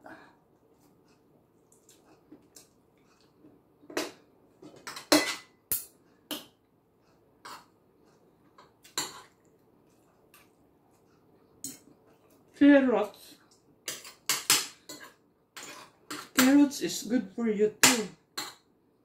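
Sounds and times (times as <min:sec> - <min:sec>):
cutlery clinking on dishes: 0:03.9 - 0:06.6, 0:08.6 - 0:09.4, 0:11.6 - 0:11.9, 0:13.9 - 0:16.6, 0:17.8 - 0:18.7.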